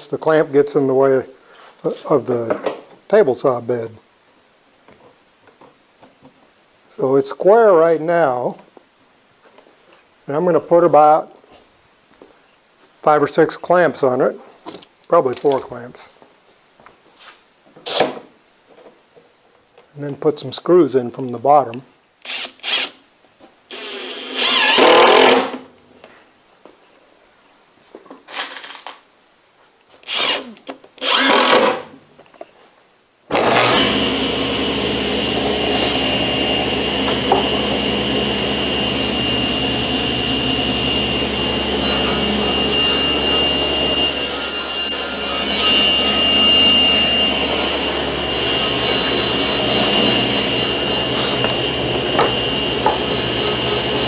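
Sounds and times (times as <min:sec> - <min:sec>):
cordless drill driving screws: 0:22.2 - 0:23.0, 0:23.7 - 0:25.6, 0:30.0 - 0:31.8, 0:33.3 - 0:34.4
table saw running: 0:23.7 - 0:25.5, 0:33.3 - 0:54.0.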